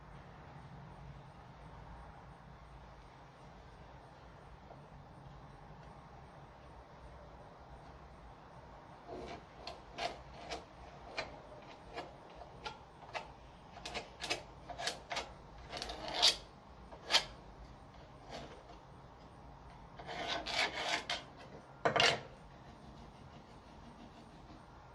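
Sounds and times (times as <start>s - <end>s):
pencil scratching on wood: 9.0s - 17.4s, 18.0s - 18.8s, 19.9s - 21.6s, 22.4s - 24.9s.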